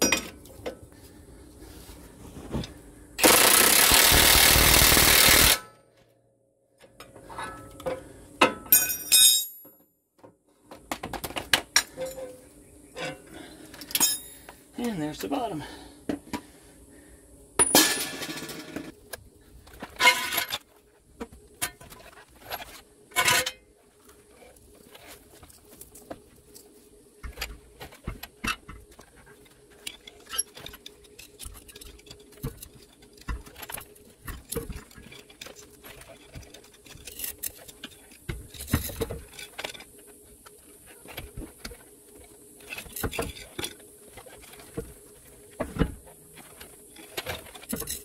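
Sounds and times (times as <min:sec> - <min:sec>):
metal tools clicking and clanking: 0:06.9 - 0:09.8, 0:13.8 - 0:14.4.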